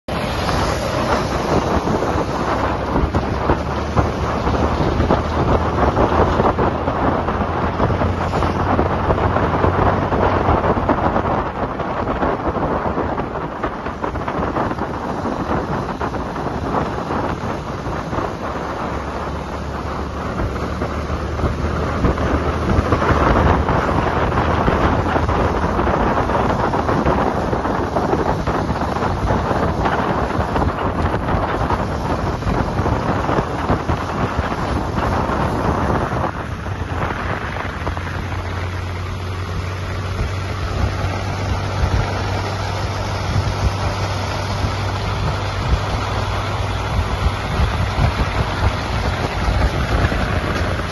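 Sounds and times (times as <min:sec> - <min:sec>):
motorcycle engine hum: 0:00.0 - 0:50.9
wind roar on microphone: 0:00.0 - 0:50.9.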